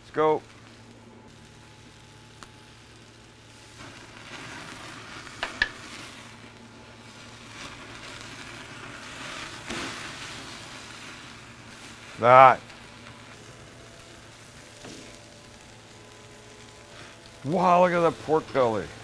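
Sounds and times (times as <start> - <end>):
lobster sizzling on grill: 0.0 - 19.0
sharp pops: 5.2 - 6.2.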